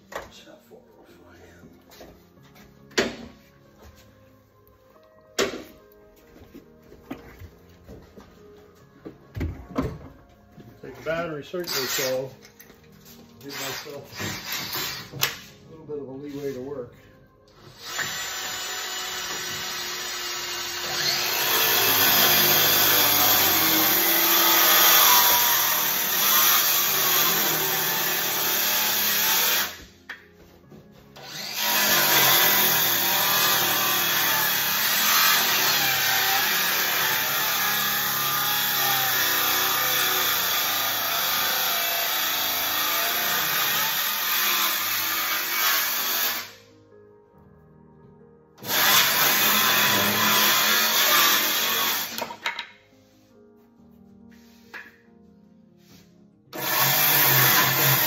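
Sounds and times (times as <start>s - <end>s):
circular saw cutting wood: 11.1s - 12.4s, 13.4s - 15.2s, 17.7s - 29.9s, 31.2s - 46.6s, 48.6s - 52.4s, 56.5s - 58.0s.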